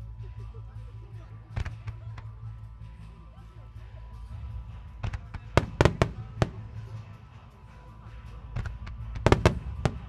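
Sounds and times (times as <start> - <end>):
music playing: 0.0 - 10.0
fireworks bursting: 5.1 - 6.8, 8.6 - 10.0.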